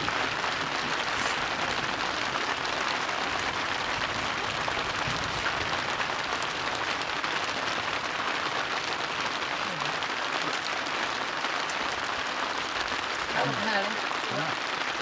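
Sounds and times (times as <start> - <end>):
steady hissing noise: 0.0 - 3.4
faint voice: 9.6 - 10.7, 13.3 - 14.6.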